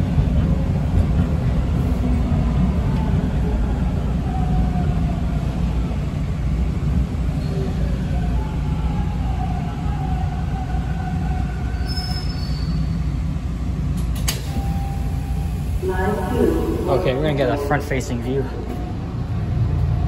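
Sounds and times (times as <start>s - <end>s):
subway train wheels rumbling: 0.0s - 20.0s
wheel and brake squeals: 11.8s - 13.0s.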